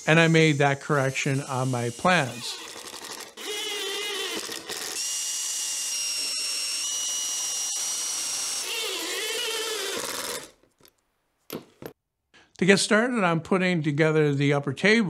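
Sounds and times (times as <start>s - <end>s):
impact driver driving screws: 1.8s - 10.6s.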